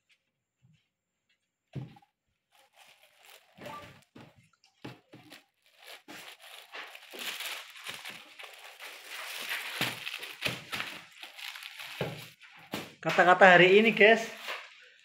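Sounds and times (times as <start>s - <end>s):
plastic bag crinkling: 2.4s - 12.8s.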